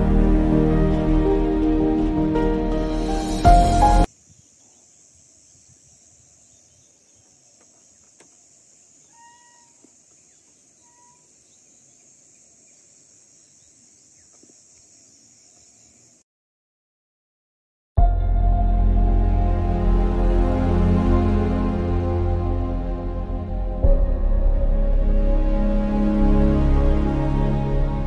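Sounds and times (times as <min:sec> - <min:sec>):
bird whistled calls: 0:09.0 - 0:09.8, 0:10.8 - 0:11.3.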